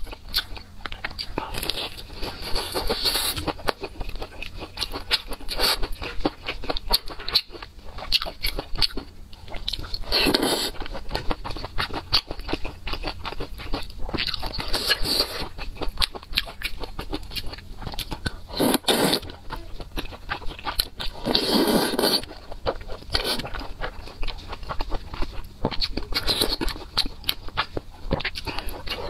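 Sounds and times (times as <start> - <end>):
wet chewing and mouth clicks: 0.0 - 29.0
noodle slurps: 21.3 - 22.2.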